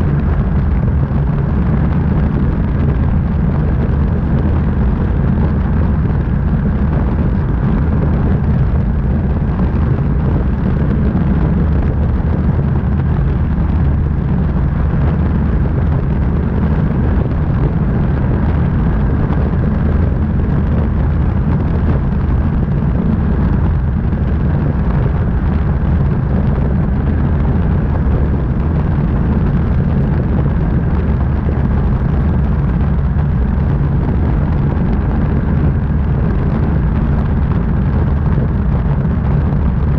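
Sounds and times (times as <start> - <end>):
aircraft engine and propeller drone: 0.0 - 39.9
wind buffeting camera: 0.0 - 39.9.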